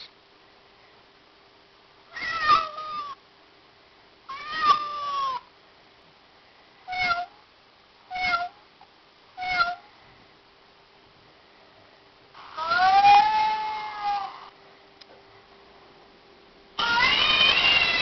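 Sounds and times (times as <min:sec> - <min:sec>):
recorded cat meows from phone speaker: 0:02.1 - 0:03.2, 0:04.3 - 0:05.4, 0:06.9 - 0:07.3, 0:08.1 - 0:08.6, 0:09.4 - 0:09.8, 0:12.4 - 0:14.5, 0:16.8 - 0:18.0.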